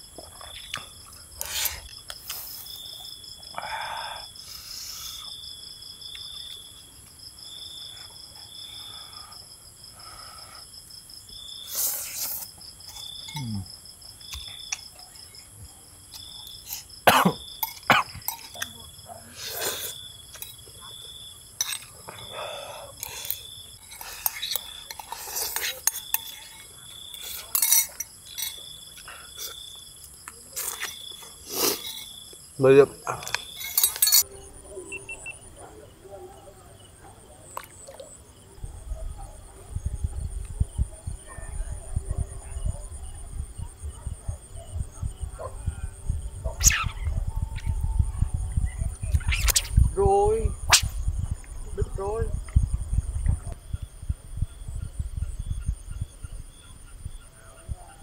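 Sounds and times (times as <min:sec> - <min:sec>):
crickets and insects chirping: 0:00.0 - 0:58.0
eating and chewing: 0:00.1 - 0:02.6, 0:21.7 - 0:32.3
spoon clinking ceramic bowl: 0:17.6 - 0:18.7, 0:27.4 - 0:28.6, 0:33.6 - 0:34.3
spoon in a bowl: 0:17.6 - 0:18.7, 0:23.0 - 0:28.6, 0:31.8 - 0:32.2, 0:33.4 - 0:34.3.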